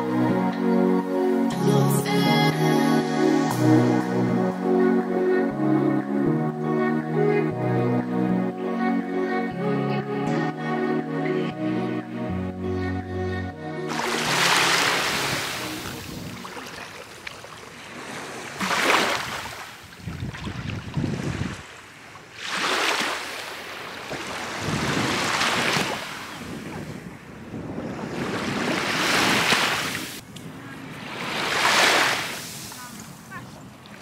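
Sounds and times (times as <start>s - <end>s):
small waves lapping on shore: 13.9s - 34.0s
wind rumble on microphone: 19.3s - 21.7s, 24.2s - 29.4s.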